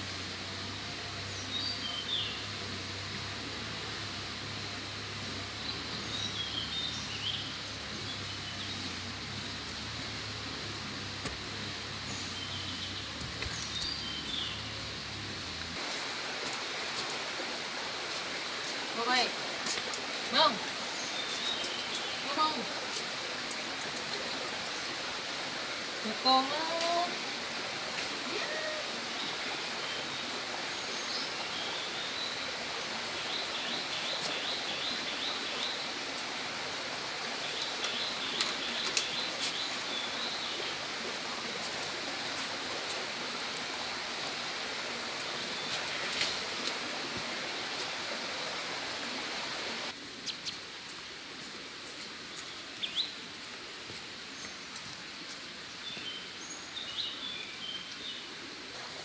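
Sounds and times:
outdoor background noise: 0.0 - 59.0
bird chirping: 12.0 - 15.0, 50.2 - 50.6.

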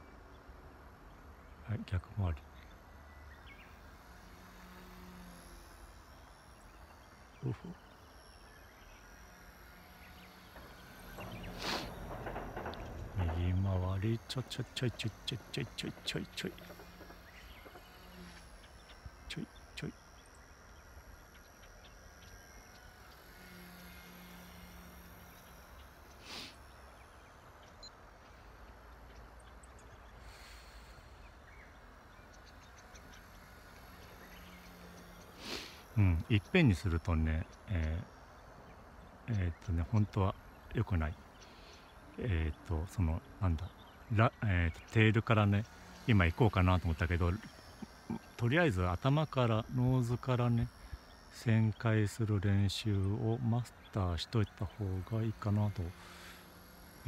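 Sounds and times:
rc helicopter motor whine: 0.0 - 57.0
faint hiss: 4.0 - 20.4, 22.4 - 27.3, 30.0 - 38.8, 43.2 - 57.0.

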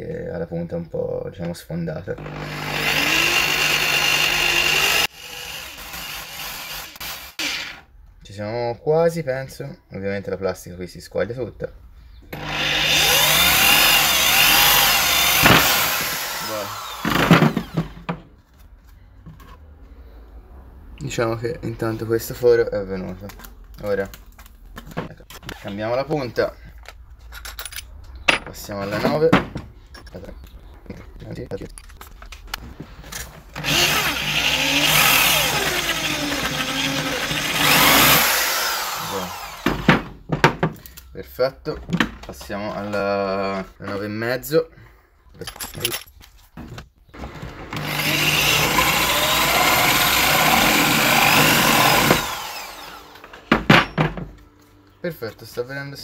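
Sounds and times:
cordless drill boring plastic: 2.2 - 7.8, 12.4 - 18.0, 33.6 - 39.9, 47.2 - 53.3
knocks of handling: 26.8 - 30.5.

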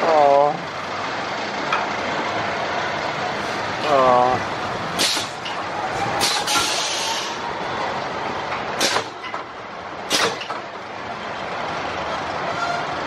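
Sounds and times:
roller coaster wheels rumbling on track: 0.0 - 13.0
sharp clacks: 10.1 - 10.6.

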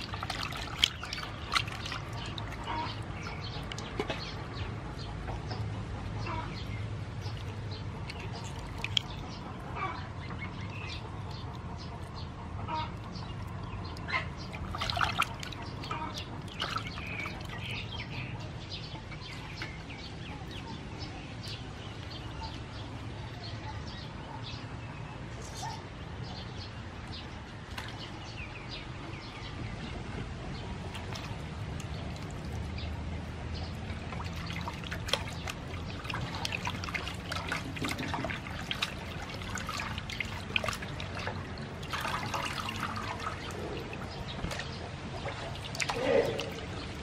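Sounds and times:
wet squelching of octopus: 0.0 - 4.2, 7.2 - 9.5, 13.4 - 17.9, 33.7 - 47.0
water splashing in basin: 0.0 - 4.7, 6.5 - 9.7, 13.9 - 18.3, 27.6 - 28.4, 30.8 - 47.0.

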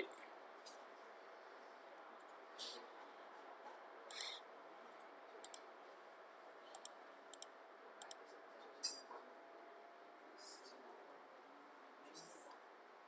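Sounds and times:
computer mouse clicking: 4.1 - 4.4, 5.4 - 5.6, 6.7 - 8.3.

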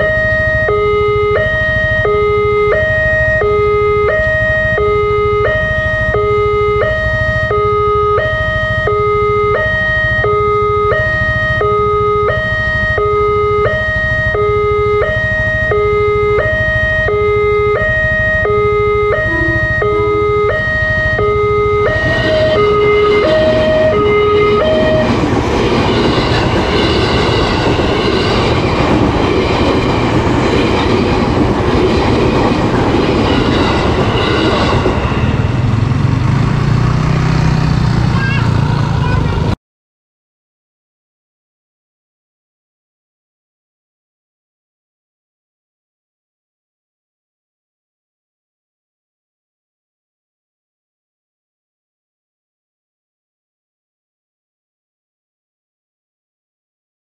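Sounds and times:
level-crossing two-tone alarm: 0.0 - 35.7
train wheel and rail noise: 19.2 - 36.9.

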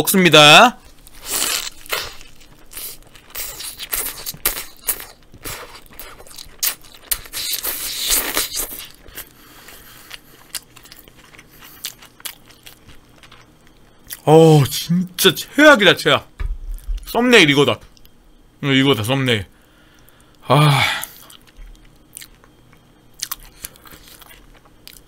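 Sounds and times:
chewing and crunching burger: 0.8 - 14.3, 21.0 - 25.0.

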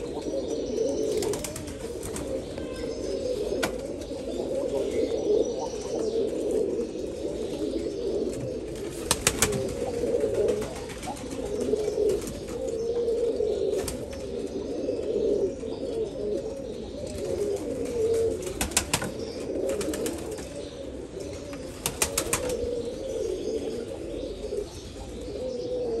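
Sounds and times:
pigeons cooing: 0.0 - 26.0
wings flapping: 1.1 - 2.4, 9.0 - 11.6, 18.4 - 19.1, 19.7 - 20.4, 21.8 - 22.7.

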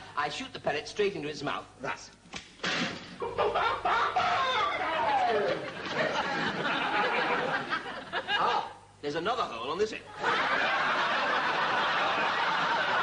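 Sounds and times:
studio audience laughing: 3.2 - 8.6, 10.1 - 13.0.

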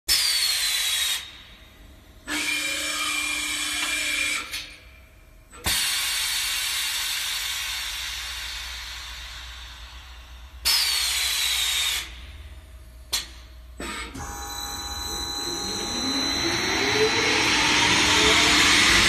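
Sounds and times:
machine air hiss: 0.1 - 1.6, 5.6 - 12.4
motor whine with gliding tones: 14.2 - 19.0.

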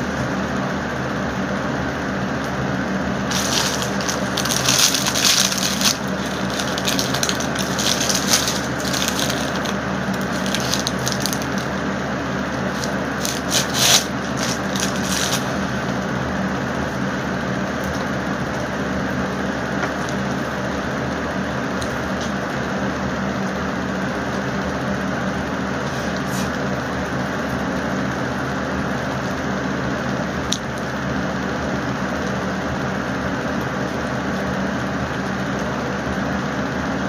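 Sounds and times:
steady low hum: 0.0 - 37.0
paper food wrapper crinkling: 3.3 - 11.8, 12.4 - 15.8.

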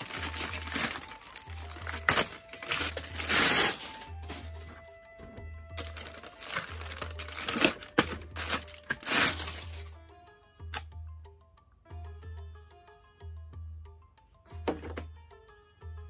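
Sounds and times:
plastic bags crinkling: 0.0 - 4.9, 5.8 - 9.9
background music with low beat: 0.0 - 16.0.

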